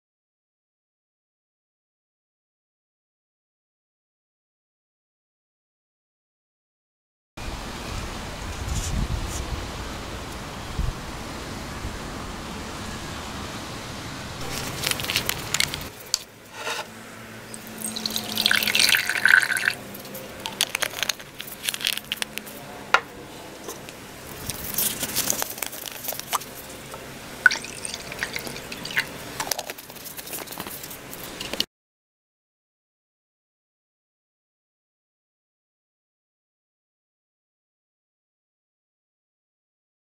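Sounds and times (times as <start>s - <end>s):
liquid pouring into glass jug: 17.5s - 22.2s, 25.3s - 31.5s.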